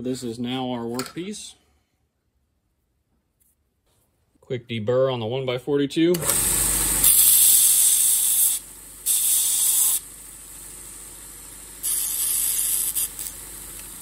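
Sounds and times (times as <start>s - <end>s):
belt sander grinding steel: 6.2s - 10.1s, 11.8s - 14.0s
belt sander running: 6.2s - 14.0s.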